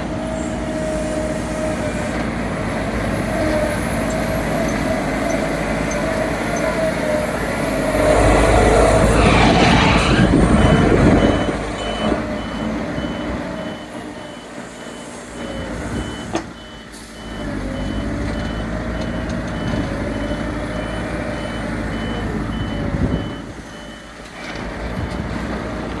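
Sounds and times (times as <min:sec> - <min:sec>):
diesel engine revving under load: 0:00.0 - 0:26.0
reversing alarm beeping: 0:05.3 - 0:24.2.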